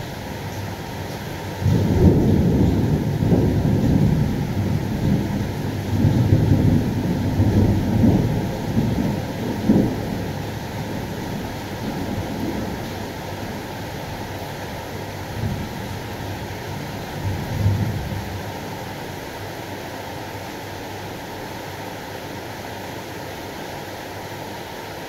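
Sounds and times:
rain hissing: 0.0s - 25.0s
thunder rumbling: 1.5s - 13.7s.

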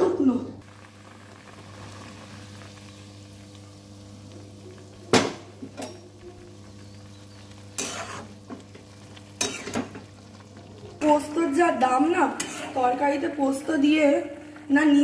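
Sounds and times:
metal spatula scraping iron pan: 12.4s - 12.8s.

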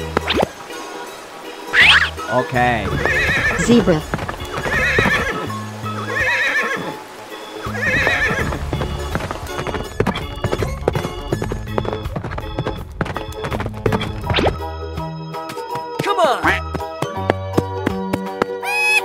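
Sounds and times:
background music: 0.0s - 19.0s
clip-clop of hooves: 2.8s - 7.0s, 7.6s - 14.6s, 16.7s - 18.8s
horse whinnying: 2.9s - 7.0s, 7.6s - 8.6s.

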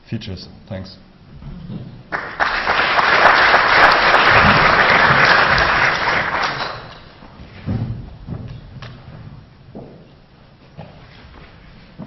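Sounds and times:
audience applauding: 2.1s - 7.2s.

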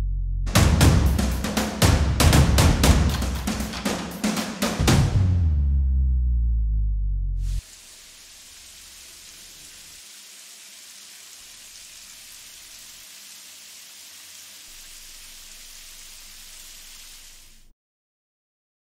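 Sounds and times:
steady hiss: 7.4s - 17.7s.

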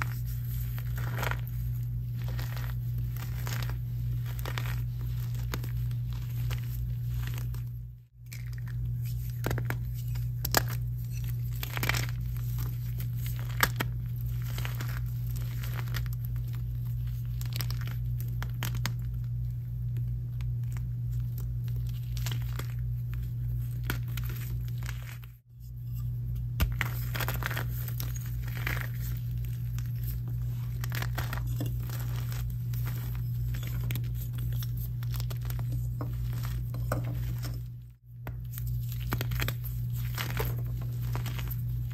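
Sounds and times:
chalk crushed in hands: 0.0s - 7.6s
steady low hum: 0.0s - 41.9s.

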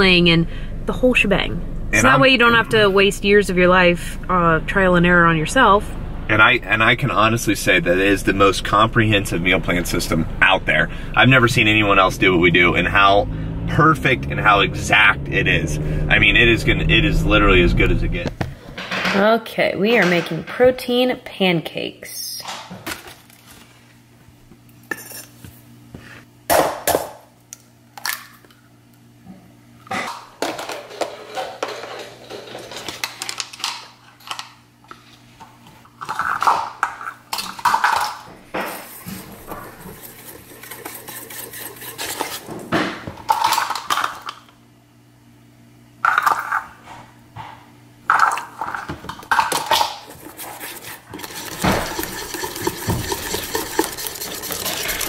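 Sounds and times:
wire whisk beating in bowl: 39.4s - 42.4s, 50.4s - 55.0s
utensils clinking against metal bowl: 48.1s - 55.0s.

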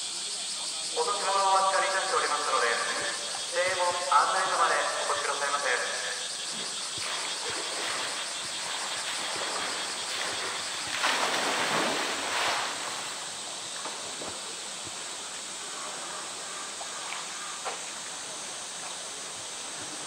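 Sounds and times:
loud water splash: 9.0s - 13.4s.

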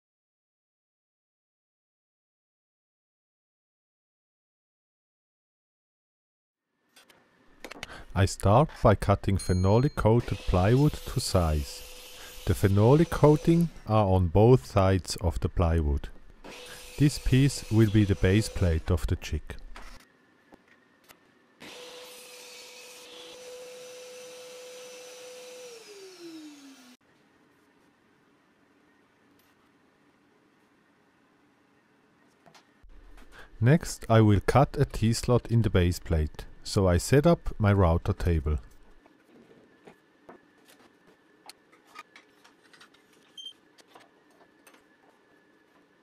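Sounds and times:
table saw whine winding down: 10.3s - 13.8s, 23.3s - 27.0s.

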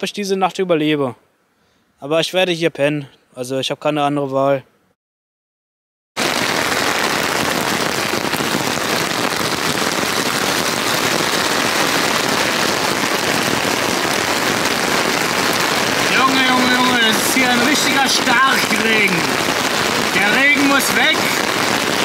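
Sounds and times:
heavy rain on a tarp: 6.2s - 22.0s.

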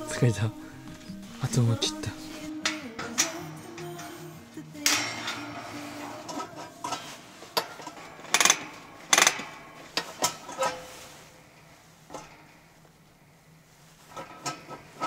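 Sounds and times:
heater metallic clicks and clanks: 2.5s - 4.2s, 4.8s - 10.9s.

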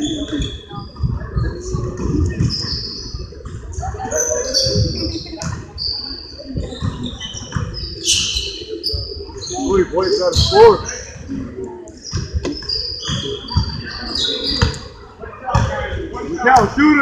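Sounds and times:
sneakers squeaking on hardwood floor: 2.4s - 3.2s, 4.0s - 11.1s, 11.9s - 15.7s.

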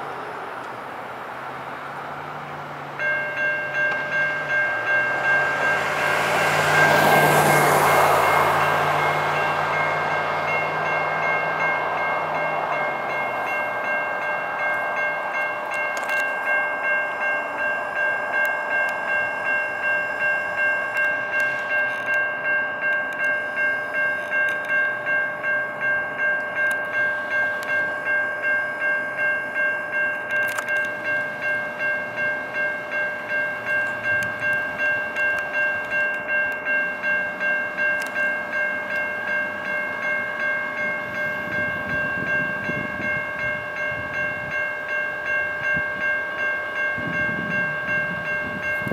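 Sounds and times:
crossing bells ringing: 0.0s - 48.9s.

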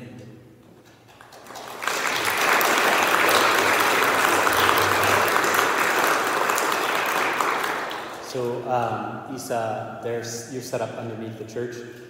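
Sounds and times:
congregation applauding: 1.0s - 8.6s.

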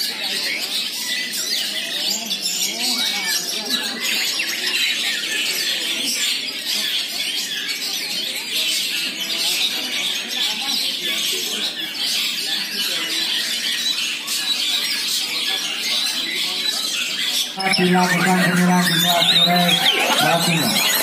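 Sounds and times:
chorus of songbirds: 0.0s - 21.0s
faint voices: 17.5s - 21.0s.

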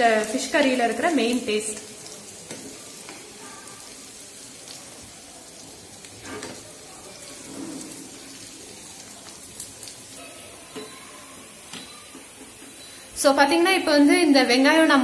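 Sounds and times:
shallots sizzling in oil: 0.0s - 15.0s
spoon stirring in pan: 1.6s - 12.9s.

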